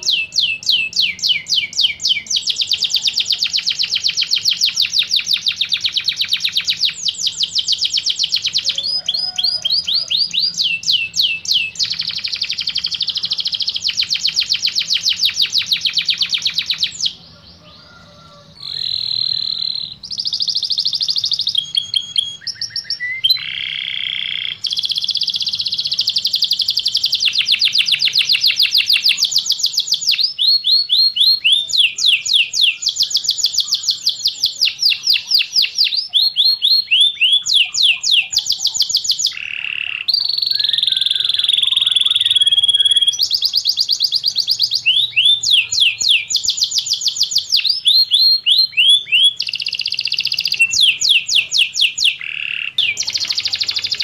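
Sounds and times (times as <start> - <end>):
canary singing: 0.0 - 54.0.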